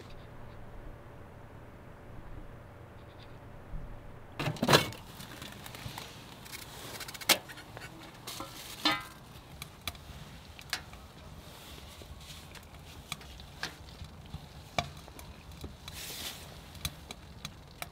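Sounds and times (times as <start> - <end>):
metal mess tin clattering: 8.3 - 9.2.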